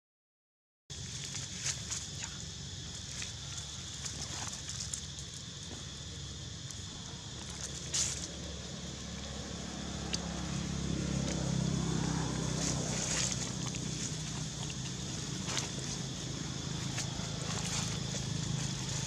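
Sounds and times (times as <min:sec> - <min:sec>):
insects droning: 0:00.9 - 0:19.0
passing vehicle motor hum: 0:07.9 - 0:19.0.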